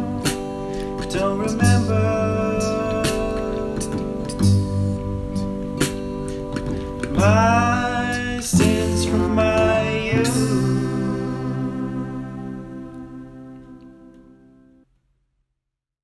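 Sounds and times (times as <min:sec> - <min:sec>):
person singing: 0:00.0 - 0:05.5, 0:07.0 - 0:14.2
acoustic guitar: 0:00.0 - 0:14.8.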